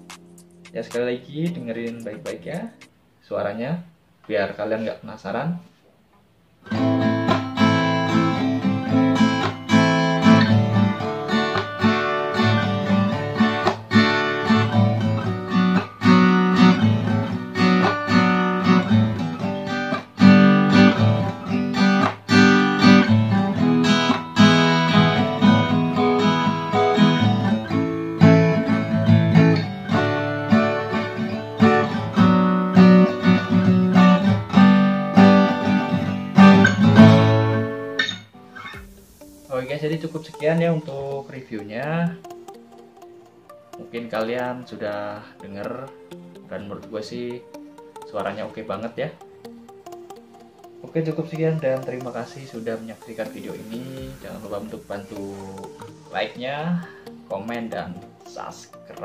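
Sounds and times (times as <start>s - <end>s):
acoustic guitar strumming chords: 0.0s - 3.2s, 6.6s - 59.0s.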